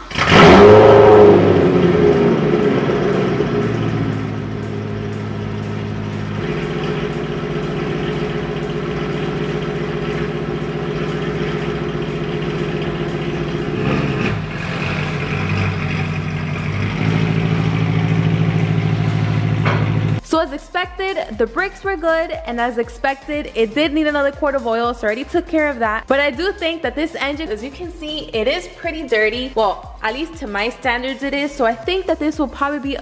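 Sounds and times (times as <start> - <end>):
car engine idling: 0.0 - 20.2.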